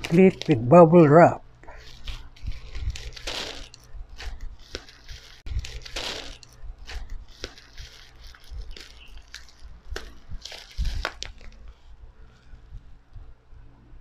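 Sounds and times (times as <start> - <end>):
bubble wrap crinkling: 0.0 - 0.8, 1.7 - 12.6
tearing rasp: 1.7 - 11.8.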